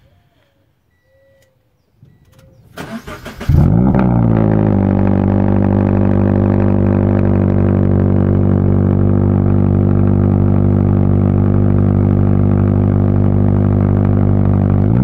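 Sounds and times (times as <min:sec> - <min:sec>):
car engine idling: 0:01.8 - 0:15.0
engine cranking: 0:02.2 - 0:03.8.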